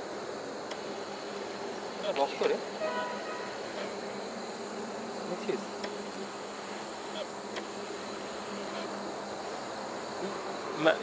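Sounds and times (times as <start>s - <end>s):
night insects chorus: 0.0s - 11.0s
faint clicks: 0.6s - 0.9s.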